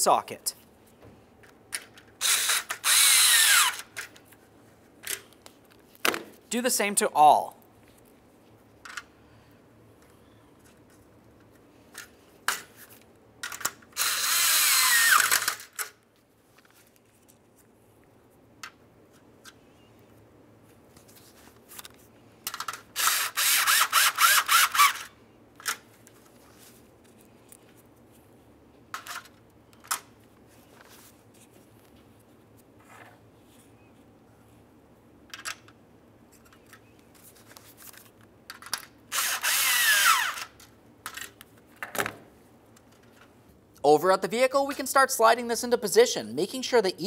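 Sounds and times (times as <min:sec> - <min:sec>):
power ratchet running: 0:02.2 - 0:03.9, 0:14.0 - 0:15.6, 0:39.1 - 0:40.4.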